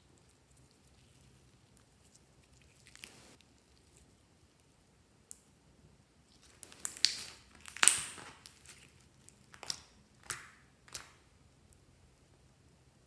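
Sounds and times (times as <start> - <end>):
slime squeezed clicks and crackles: 6.6 - 11.2.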